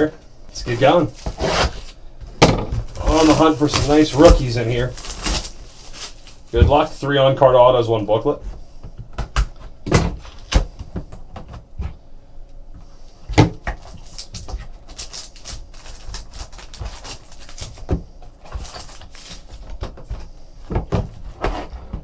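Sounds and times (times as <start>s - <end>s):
papery rustling: 2.8s - 6.9s, 13.8s - 19.8s.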